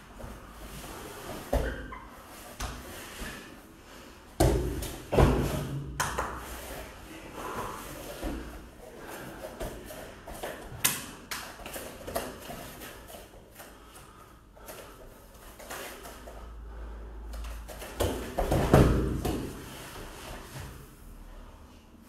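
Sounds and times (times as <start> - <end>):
bare feet thudding on foam mats: 4.3 - 6.7, 17.4 - 20.8.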